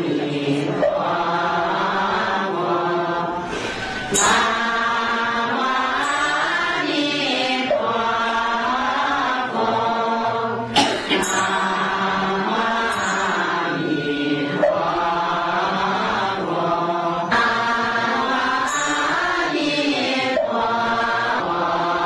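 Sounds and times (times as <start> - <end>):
devotional chanting: 0.0 - 22.0.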